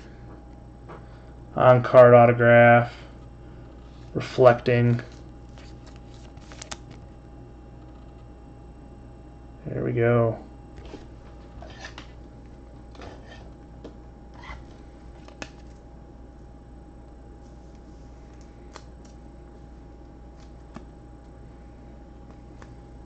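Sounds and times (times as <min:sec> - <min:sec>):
faint high whine: 0:00.0 - 0:23.0
low electrical hum: 0:00.0 - 0:23.0
faint handling clicks and rustles: 0:04.9 - 0:07.2.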